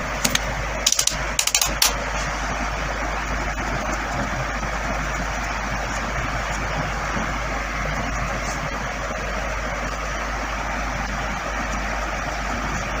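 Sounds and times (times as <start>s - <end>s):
sharp clicks: 0.2s - 2.0s.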